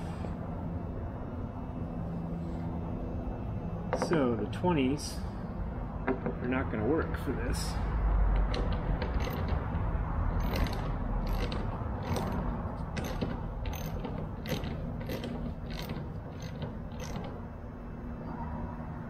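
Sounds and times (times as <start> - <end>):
hand ratchet clicking: 8.4 - 17.4.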